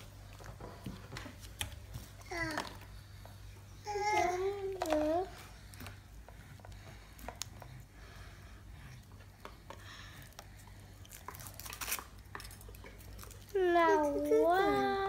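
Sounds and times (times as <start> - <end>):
child's high voice: 13.5 - 15.0.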